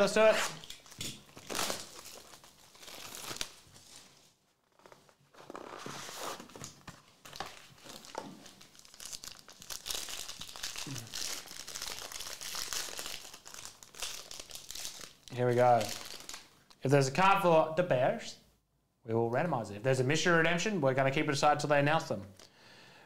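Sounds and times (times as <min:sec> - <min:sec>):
cellophane wrap crinkling: 0:00.0 - 0:16.8
foil pack crinkling and tearing: 0:00.0 - 0:16.8.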